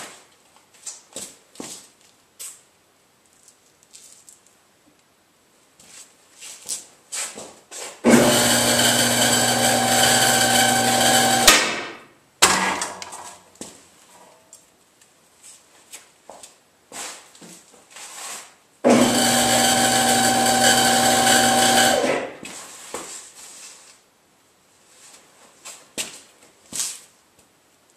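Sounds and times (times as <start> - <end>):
hydraulic pump motor running: 8.1 - 11.5, 18.9 - 22.3
sharp metal clunk: 11.5 - 13.4.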